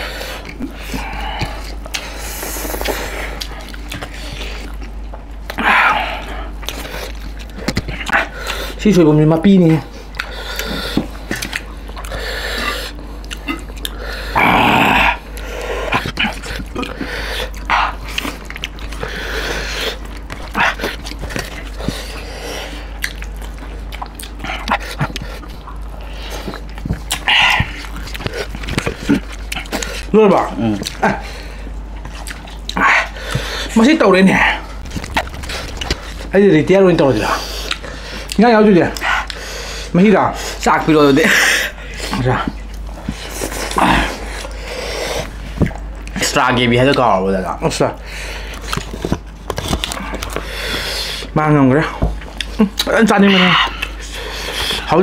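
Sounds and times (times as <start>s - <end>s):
people chewing and smacking: 0.0s - 36.3s, 37.4s - 55.0s
low steady hum: 0.0s - 46.2s
loud noisy sound: 34.8s - 37.0s.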